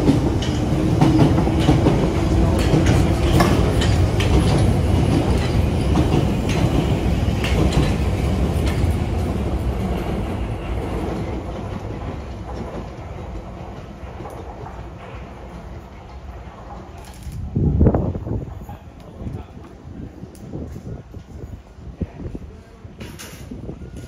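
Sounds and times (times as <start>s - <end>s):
train wheels clattering over rail joints: 0.0s - 17.5s
train rumble: 0.0s - 24.0s.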